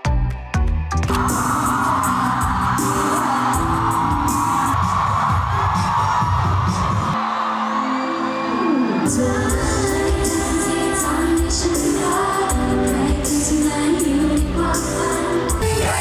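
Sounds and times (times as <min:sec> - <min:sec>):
women singing pop song: 0:09.0 - 0:16.0.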